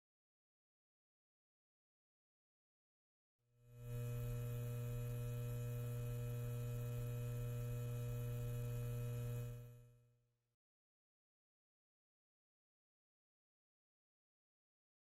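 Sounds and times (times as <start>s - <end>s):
low electrical hum: 3.7s - 10.0s.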